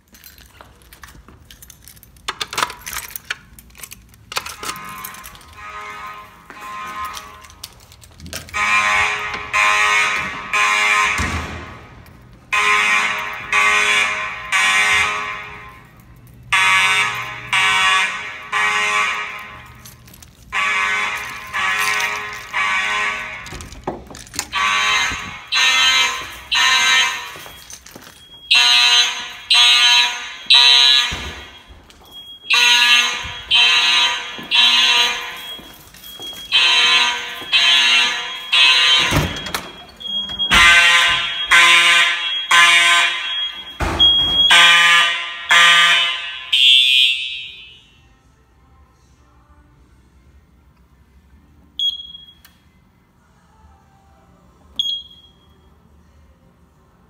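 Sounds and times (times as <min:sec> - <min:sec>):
fire alarm horns: 0:03.8 - 0:48.1.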